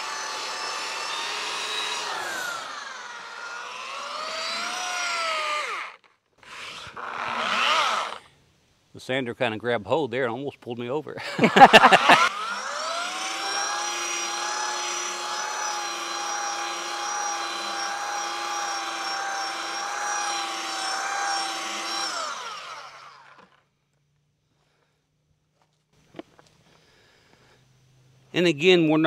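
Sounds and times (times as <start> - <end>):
power sander motor whining: 0.0 - 8.3, 11.6 - 23.6.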